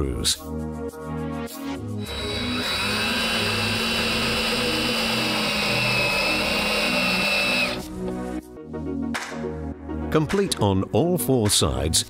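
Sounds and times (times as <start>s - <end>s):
cordless drill driving screw: 2.0s - 7.9s.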